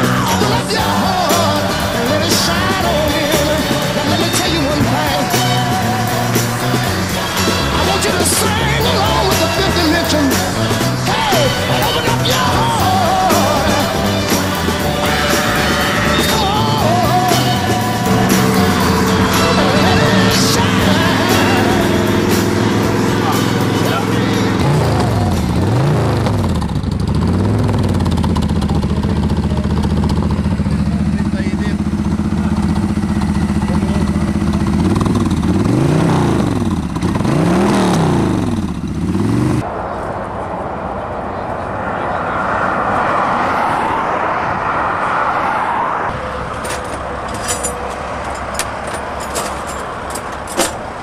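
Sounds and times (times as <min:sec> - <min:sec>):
motorcycle engine revving and idling: 0:00.0 - 0:39.7
clicks and knocks of gear: 0:46.5 - 0:50.9.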